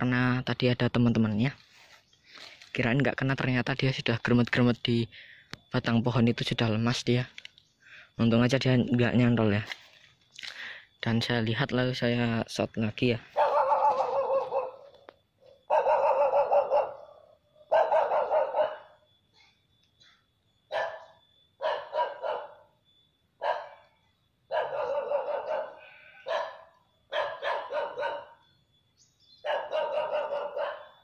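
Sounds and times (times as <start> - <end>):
dog barking: 13.4 - 19.0, 20.7 - 22.7, 23.4 - 23.9, 24.5 - 28.5, 29.4 - 31.0.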